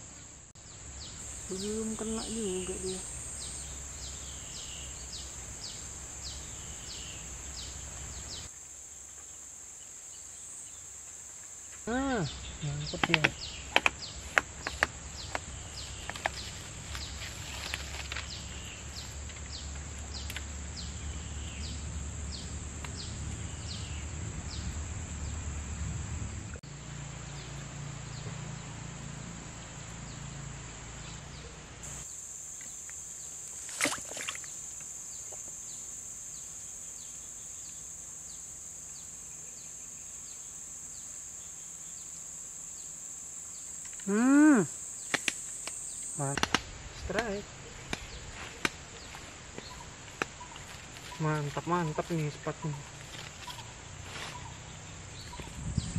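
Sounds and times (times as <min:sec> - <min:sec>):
high-pitched insect drone: 0:00.9 - 0:26.0, 0:31.9 - 0:46.4
sharp tick: 0:45.1 - 0:46.6.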